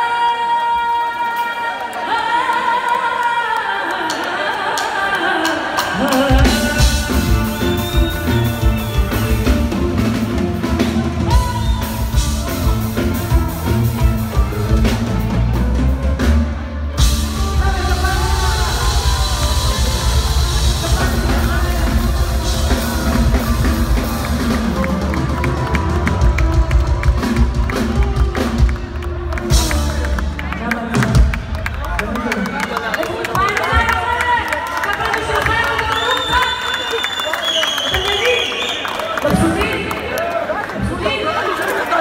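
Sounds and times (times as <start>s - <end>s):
woman singing: 0.0s - 9.6s, 17.1s - 28.5s
live band with drums and bass: 5.4s - 40.0s.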